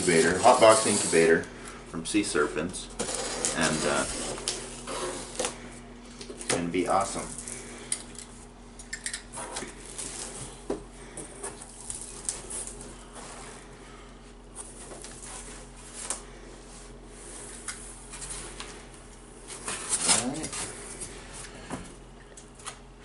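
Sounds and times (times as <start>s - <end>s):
foam packing rustling: 3.0s - 7.6s.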